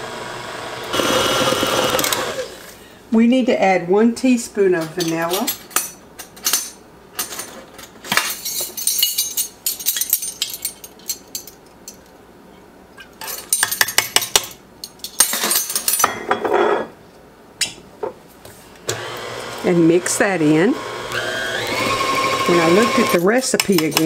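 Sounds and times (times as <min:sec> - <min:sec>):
metal measuring spoons clinking: 0:08.2 - 0:12.0, 0:23.0 - 0:24.0.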